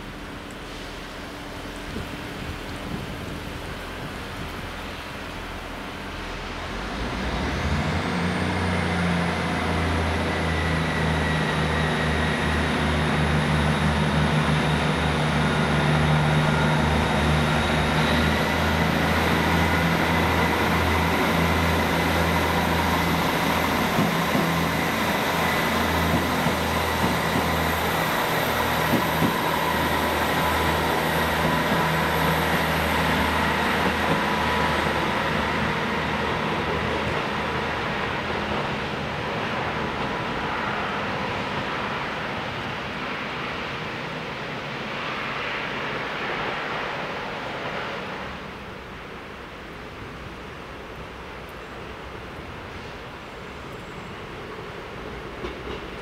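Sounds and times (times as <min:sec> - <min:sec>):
rail and wheel rumble: 0:00.0 - 0:56.0
diesel engine drone: 0:05.3 - 0:39.0.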